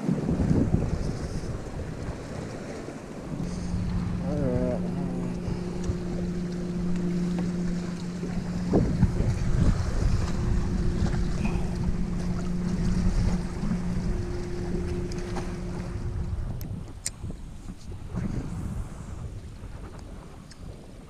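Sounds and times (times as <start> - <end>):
wind buffeting microphone: 0.0 - 21.0
small motor humming: 3.2 - 16.6.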